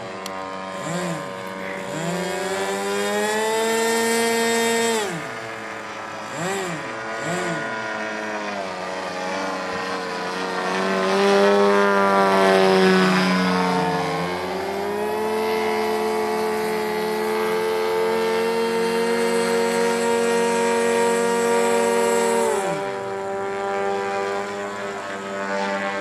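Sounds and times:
model airplane engine and propeller: 0.0 - 26.0.

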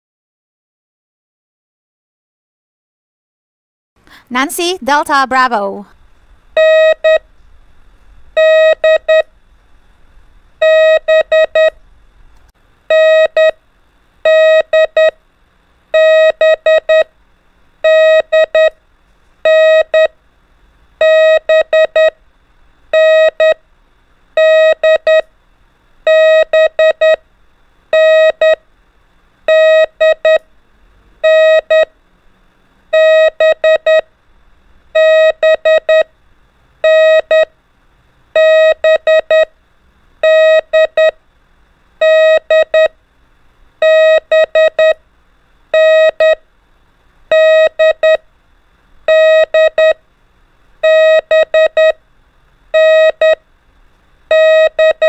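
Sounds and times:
morse code beeps: 6.6 - 7.2, 8.4 - 9.3, 10.6 - 11.8, 12.9 - 13.6, 14.2 - 15.2, 16.0 - 17.1, 17.8 - 18.7, 19.4 - 20.1, 21.0 - 22.2, 23.0 - 23.6, 24.4 - 25.2, 26.1 - 27.2, 28.0 - 28.6, 29.5 - 30.4, 31.2 - 31.9, 33.0 - 34.0, 35.0 - 36.1, 36.8 - 37.5, 38.4 - 39.5, 40.2 - 41.2, 42.0 - 42.9, 43.8 - 45.0, 45.8 - 46.4, 47.3 - 48.2, 49.1 - 50.0, 50.8 - 52.0, 52.8 - 53.4, 54.3 - 55.0.

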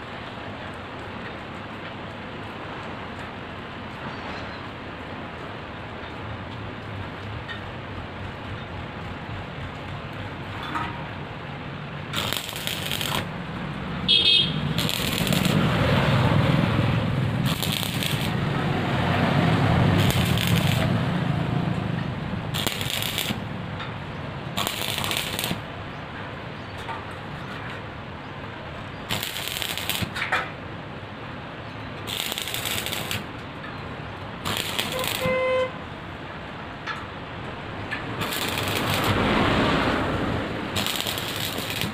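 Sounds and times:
arc welding crackling: 11.9 - 25.9, 29.0 - 30.5, 32.0 - 33.6, 34.2 - 35.8, 37.8 - 41.9.

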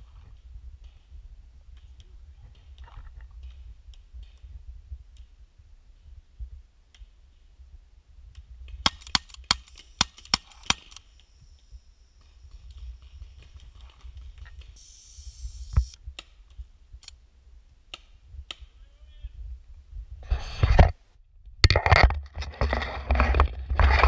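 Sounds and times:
paintball marker shots: 8.8 - 11.2.

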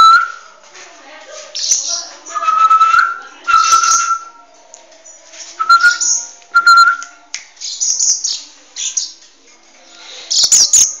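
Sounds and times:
whistled bird notes: 1.6 - 4.4.

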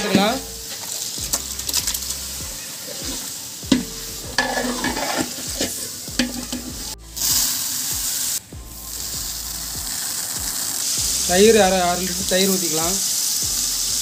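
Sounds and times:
masala sizzling in pot: 0.0 - 14.0
ladle scraping and knocking pot: 3.0 - 6.8.

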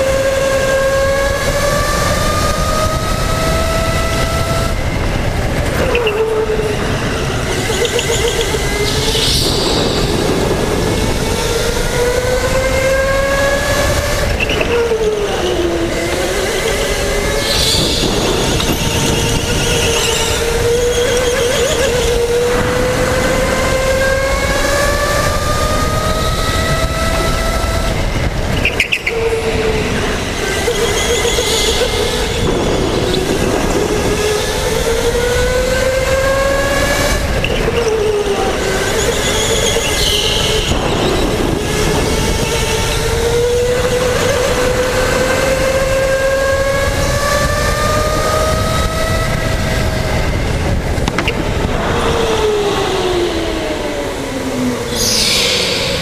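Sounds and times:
electric go-kart motor whining: 0.0 - 56.0
tyre squeals on concrete: 16.5 - 22.2, 30.5 - 33.3, 38.9 - 41.3, 54.9 - 56.0.

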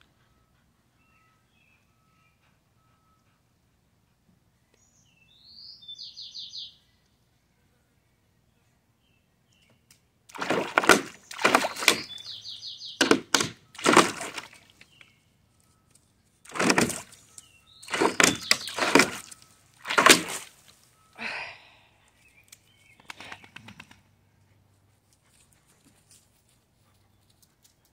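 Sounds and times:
dog digging and splashing in water: 10.3 - 12.4, 13.0 - 15.0, 16.4 - 20.7.

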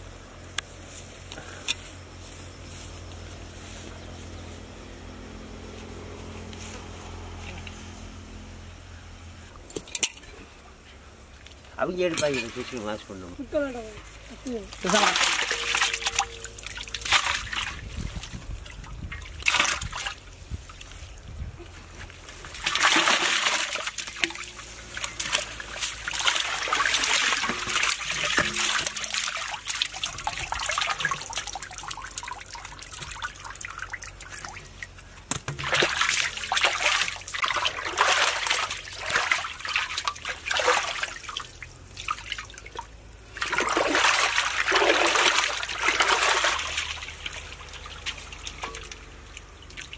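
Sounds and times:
water trickling: 11.3 - 21.0, 22.4 - 49.9
splashing water in a pot: 14.7 - 21.0, 22.4 - 49.9.

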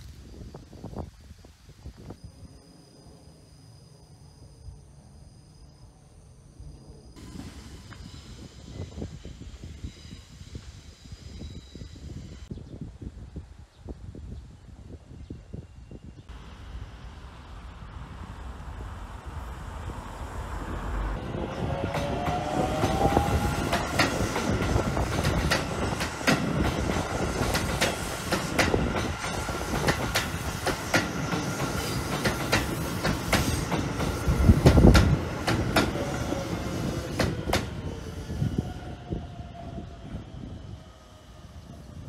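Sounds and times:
train rumbling past: 2.2 - 12.5, 15.4 - 42.0
train wheels clacking over rail joints: 21.9 - 36.2.

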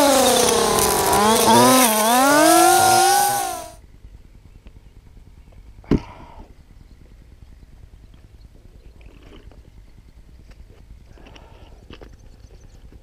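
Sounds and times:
string trimmer cutting grass: 0.0 - 3.8.

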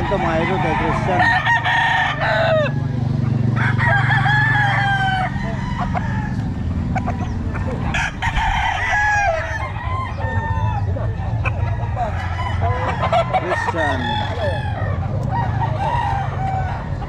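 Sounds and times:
roosters crowing: 0.0 - 17.0.

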